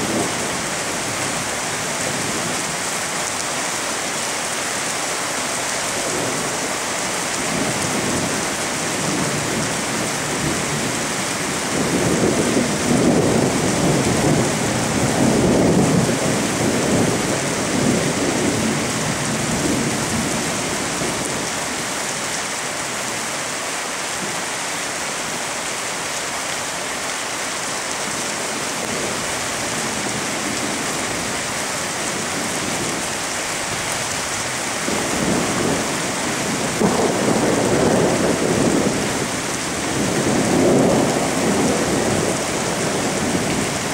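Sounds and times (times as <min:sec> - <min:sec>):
steady rain: 0:00.0 - 0:43.9
thunder rumbling: 0:06.0 - 0:21.5, 0:33.7 - 0:43.9.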